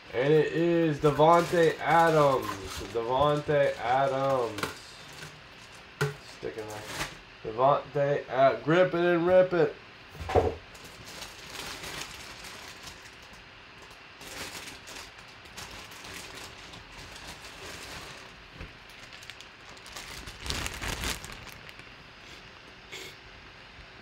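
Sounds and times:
plastic bag crinkling: 0.2 - 7.2, 10.7 - 22.1.

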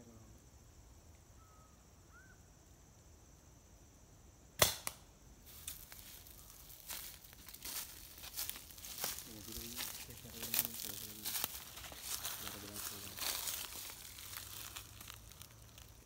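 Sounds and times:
faint insect hiss: 0.0 - 16.0
dart gun pop: 4.6 - 5.0
twigs and brush crackling: 4.6 - 16.0.

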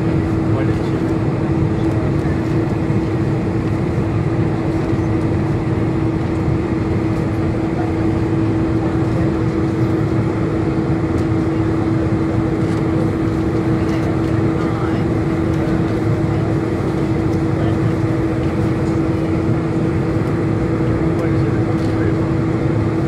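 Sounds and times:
constant hum: 0.0 - 23.0
jet engines rumbling: 0.0 - 23.0.

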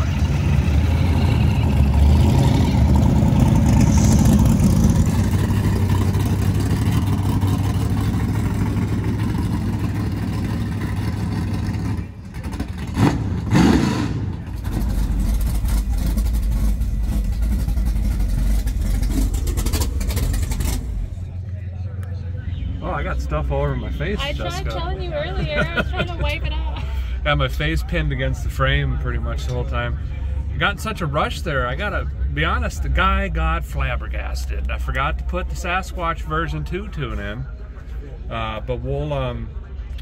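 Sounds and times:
engine revving: 0.0 - 21.3
race car engines rumbling: 0.0 - 40.0
truck engine idling: 0.0 - 40.0.

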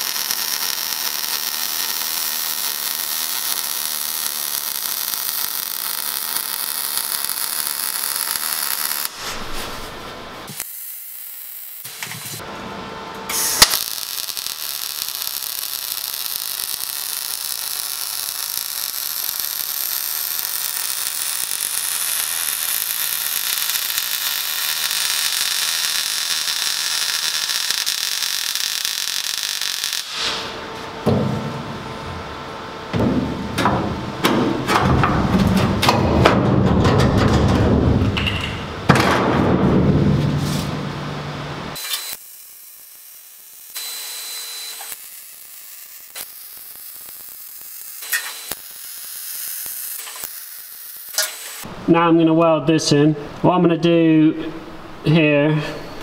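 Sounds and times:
welder hissing: 0.0 - 10.8, 13.3 - 30.6, 41.8 - 51.7.

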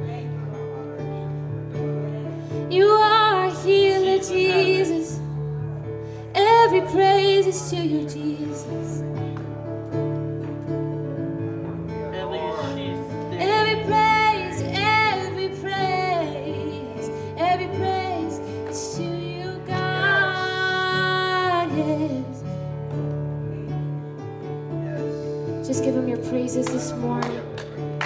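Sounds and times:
person singing: 2.7 - 5.3, 13.4 - 22.4.

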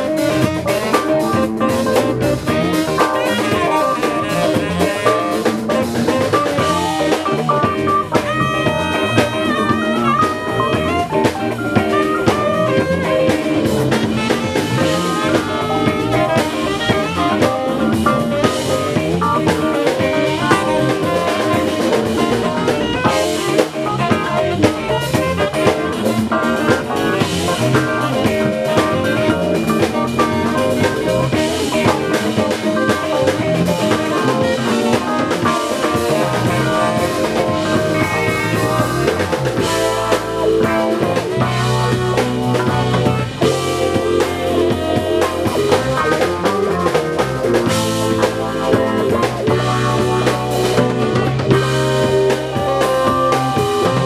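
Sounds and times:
band playing instrumental: 0.0 - 54.0.

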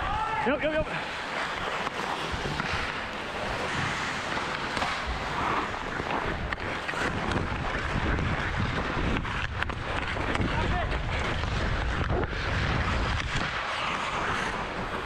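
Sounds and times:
ice skates scraping on ice: 0.1 - 15.0
hockey stick clicking puck: 1.5 - 3.0, 4.2 - 10.5
wind on microphone: 2.2 - 15.0.

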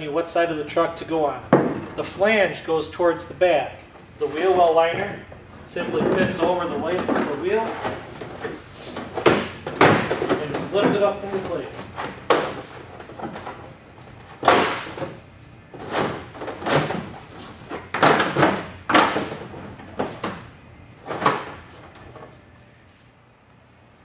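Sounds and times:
plastic liner thumping and scraping: 5.8 - 13.7, 14.4 - 22.3.

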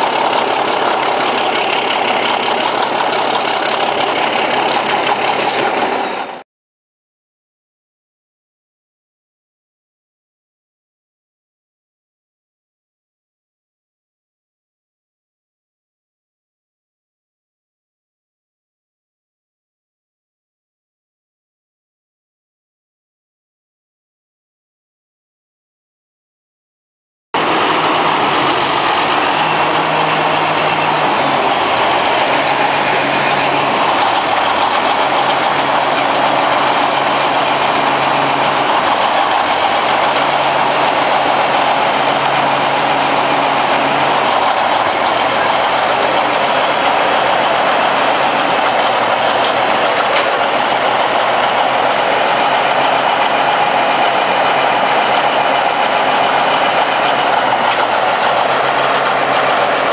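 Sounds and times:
bulldozer diesel engine running: 0.0 - 6.4, 27.4 - 59.9.

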